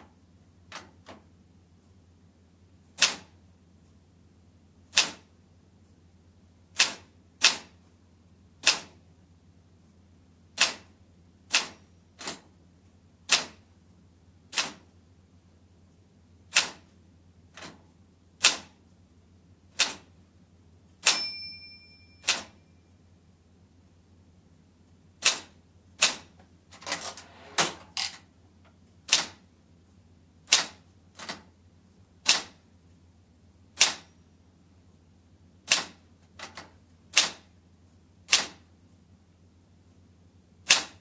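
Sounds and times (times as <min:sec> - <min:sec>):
typewriter margin bell ringing: 0:21.0 - 0:22.8
typewriter keys clacking: 0:22.2 - 0:22.6.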